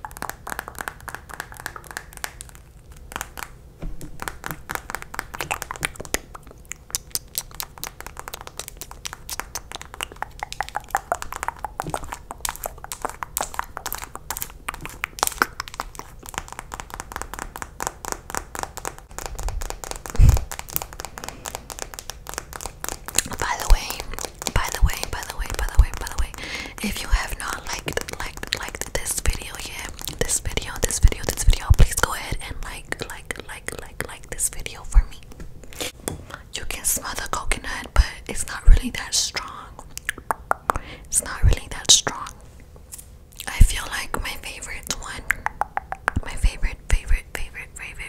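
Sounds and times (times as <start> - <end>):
nails tapping on plastic tube: 3.1 - 26.5, 45.3 - 46.4.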